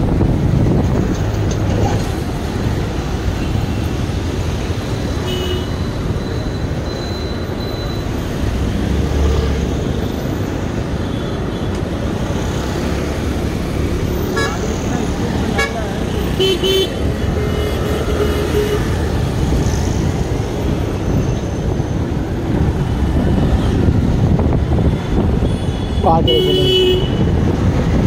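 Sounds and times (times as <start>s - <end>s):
wind noise: 0.0s - 5.2s, 18.8s - 28.0s
road traffic rumble: 0.0s - 28.0s.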